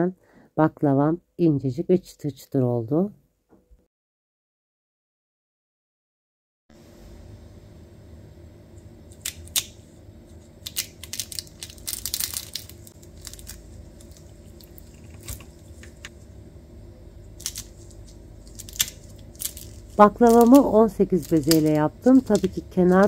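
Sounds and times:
pastry crunching and crackling: 9.1 - 16.4, 17.1 - 23.0.

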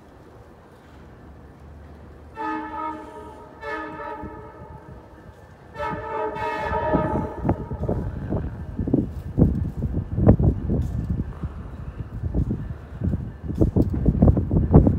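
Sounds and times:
train rumble and clatter: 0.0 - 14.9
train horn blasts: 2.3 - 8.7.

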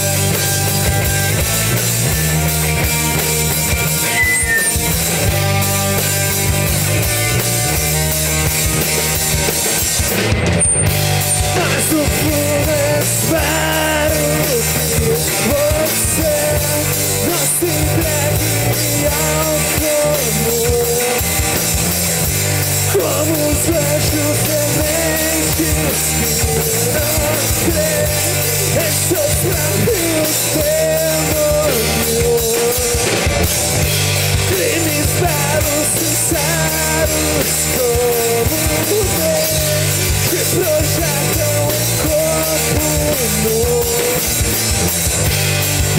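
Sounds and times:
drum kit with cymbals: 0.0 - 45.9
electric bass: 0.0 - 45.9
man singing lead vocals: 3.8 - 5.0, 11.2 - 21.9, 22.7 - 45.0.

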